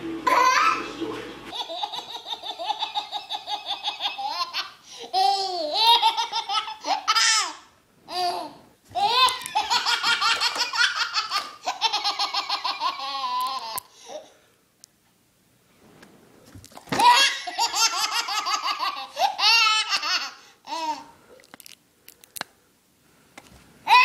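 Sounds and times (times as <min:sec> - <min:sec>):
baby belly laughing: 0:01.5 - 0:14.3, 0:16.9 - 0:21.1.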